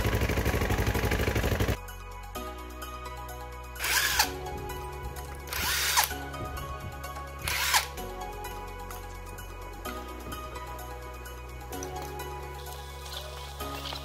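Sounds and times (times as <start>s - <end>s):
background music: 0.0s - 14.0s
impact wrench whirring: 3.8s - 4.3s, 5.5s - 6.1s, 7.4s - 7.9s.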